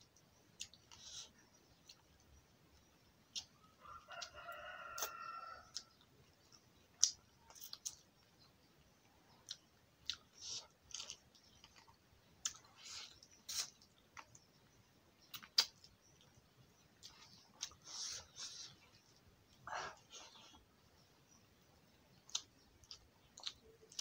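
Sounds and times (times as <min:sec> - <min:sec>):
lip smacks and chewing: 0:09.3 - 0:14.5, 0:15.3 - 0:16.4, 0:17.0 - 0:20.7, 0:22.2 - 0:24.0.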